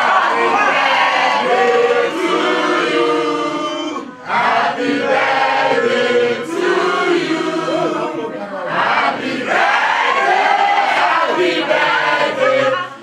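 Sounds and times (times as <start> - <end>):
group singing in chorus: 0.0 - 13.0.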